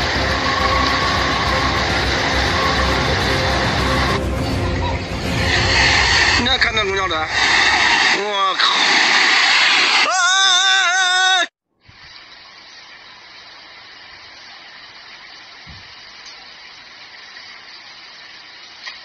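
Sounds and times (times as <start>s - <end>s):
rain: 0.0s - 4.6s, 12.0s - 19.0s
loud wavering pitched sound: 0.0s - 7.8s.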